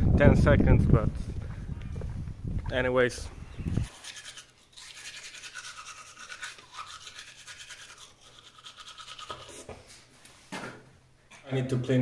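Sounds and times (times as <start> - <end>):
electric toothbrush scrubbing teeth: 3.8 - 9.7.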